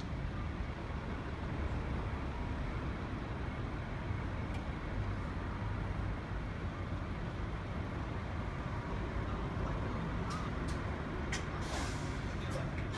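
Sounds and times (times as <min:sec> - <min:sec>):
bus diesel engines rumbling: 0:00.0 - 0:12.9.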